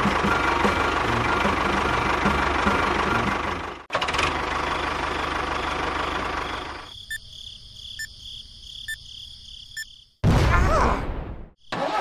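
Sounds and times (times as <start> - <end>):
tractor engine running: 0.0 - 7.2.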